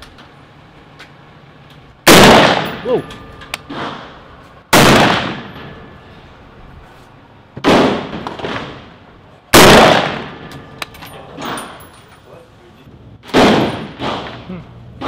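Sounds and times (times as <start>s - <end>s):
rifle shots with echo: 2.1s - 2.9s, 3.6s - 5.8s, 7.6s - 10.6s, 13.2s - 14.5s.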